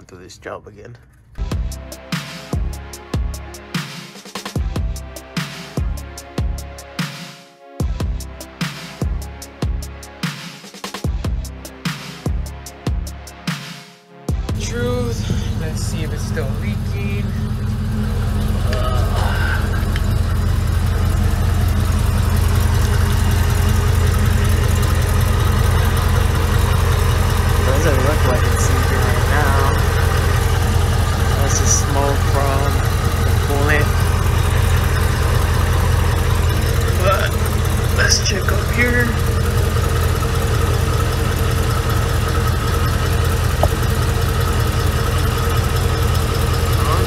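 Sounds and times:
truck engine idling: 0:14.3 - 0:47.0.

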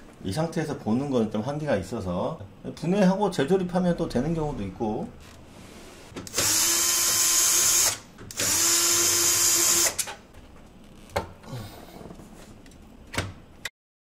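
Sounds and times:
cordless drill running: 0:06.3 - 0:10.1.

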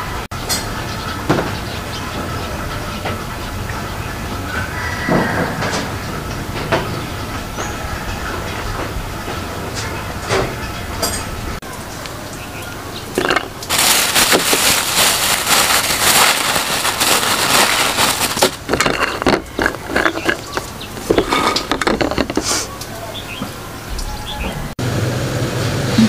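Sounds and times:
plastic bag crinkling: 0:13.2 - 0:22.5.

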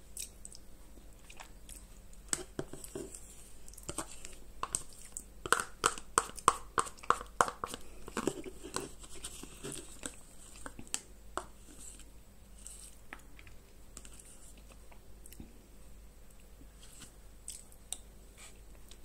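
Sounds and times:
spoon scraping plastic tub: 0:02.3 - 0:13.0.

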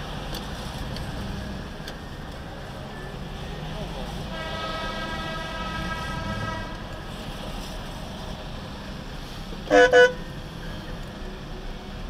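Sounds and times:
loud car horn honks: 0:04.3 - 0:06.9, 0:09.7 - 0:10.2.

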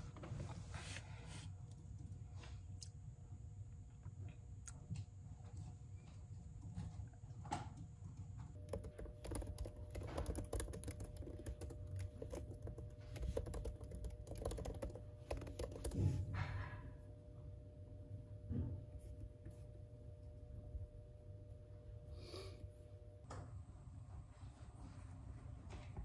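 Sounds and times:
laptop keyboard typing: 0:08.4 - 0:16.4.

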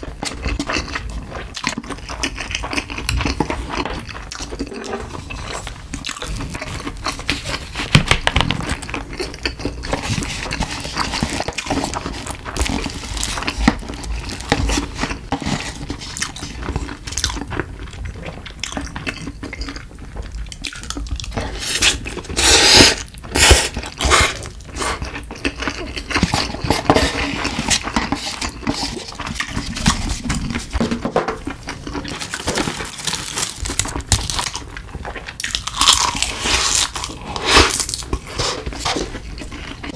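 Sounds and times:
chewing and mouth noises: 0:00.0 - 0:30.8, 0:31.4 - 0:39.9
loud noodle slurps: 0:21.5 - 0:25.0.

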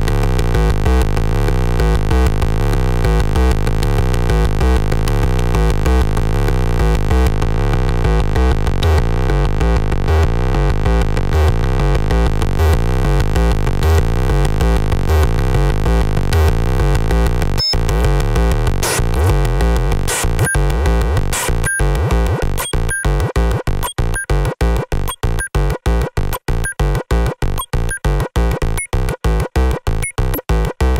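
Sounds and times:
gritty synthesizer sequence: 0:00.0 - 0:30.9.

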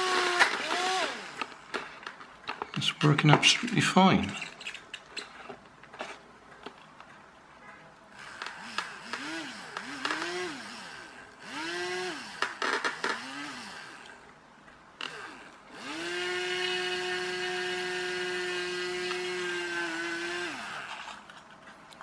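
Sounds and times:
small electric motor whining: 0:00.0 - 0:01.6, 0:08.2 - 0:14.2, 0:15.0 - 0:21.2.

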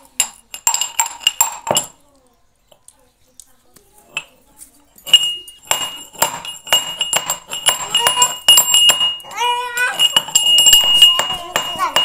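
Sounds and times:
pestle striking metal mortar: 0:05.0 - 0:12.0.

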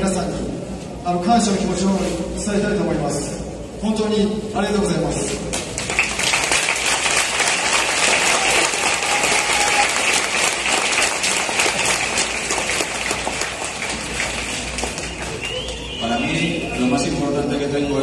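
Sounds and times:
large crowd applauding: 0:05.5 - 0:16.4.

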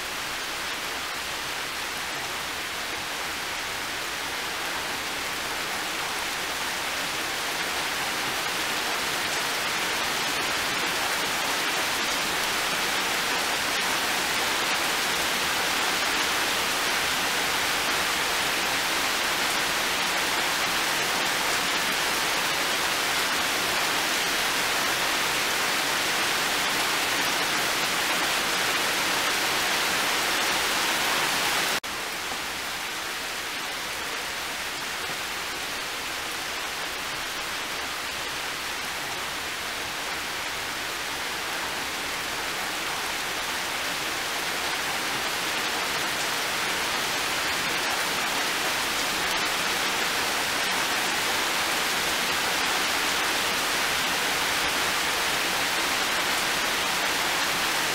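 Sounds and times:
heavy rain pouring: 0:00.0 - 0:57.9.

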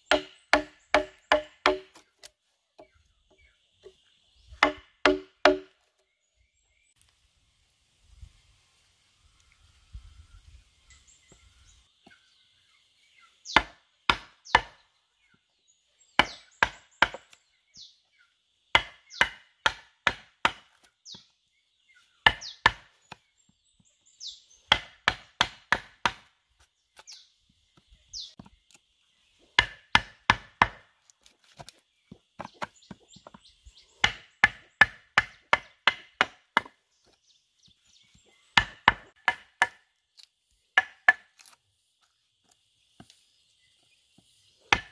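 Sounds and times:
mallet striking chisel on wood: 0:00.0 - 0:02.0, 0:04.6 - 0:05.7, 0:24.7 - 0:26.2, 0:40.8 - 0:41.2.

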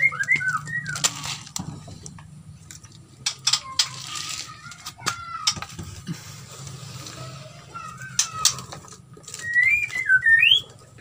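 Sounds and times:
myna whistled calls: 0:09.4 - 0:10.7.

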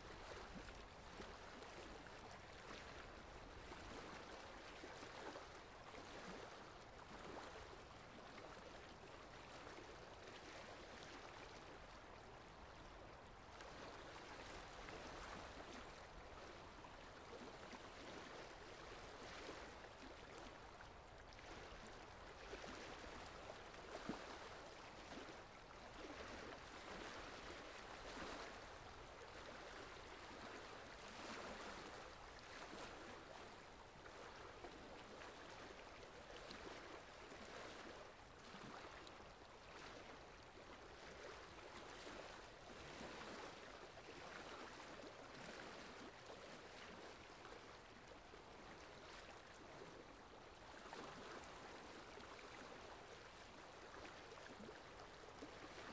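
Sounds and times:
faint steady rain: 0:00.0 - 0:21.2.

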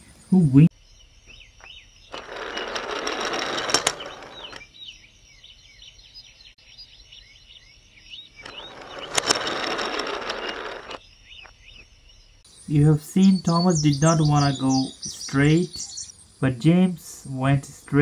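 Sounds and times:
birds chirping faintly: 0:00.0 - 0:18.0
toy train engines whirring: 0:02.1 - 0:04.6, 0:08.4 - 0:11.0.

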